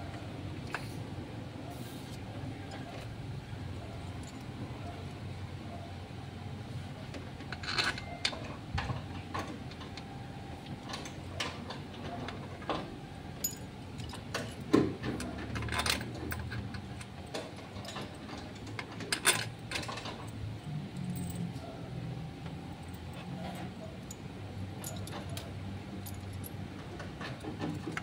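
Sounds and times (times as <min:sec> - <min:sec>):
hand tools clinking on metal: 0:13.4 - 0:17.1.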